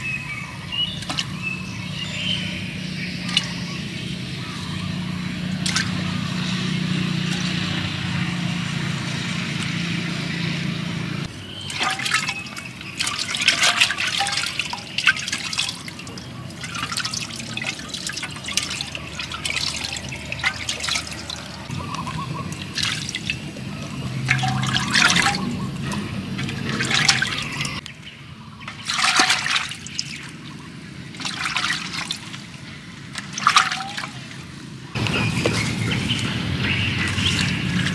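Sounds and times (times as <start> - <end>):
hands splashing in water: 5.6 - 6.1, 11.5 - 23.6, 24.2 - 27.8, 28.7 - 34.4
running water: 11.3 - 27.8, 28.6 - 37.9.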